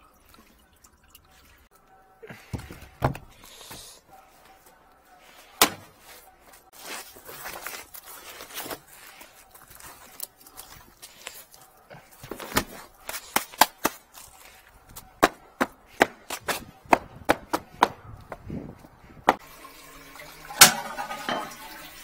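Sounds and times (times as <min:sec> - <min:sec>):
boot footsteps on concrete: 0:02.5 - 0:03.4, 0:12.2 - 0:19.4.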